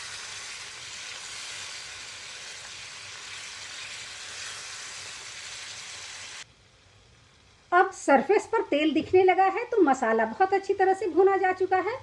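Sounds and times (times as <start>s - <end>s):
paste sizzling in hot oil: 0.0s - 8.6s.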